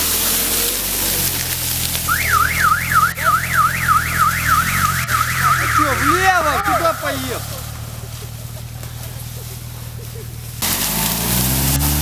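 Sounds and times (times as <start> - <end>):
engine running low and steady: 0.0 - 12.0
car alarm warbling: 2.1 - 8.2.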